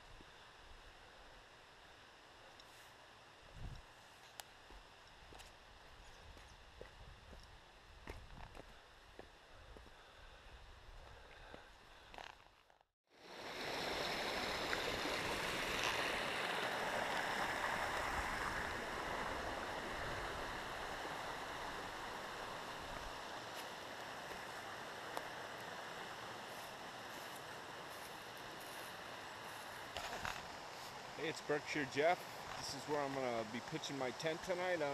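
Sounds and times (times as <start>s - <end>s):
stream rushing over rocks: 13.2s - 33.9s.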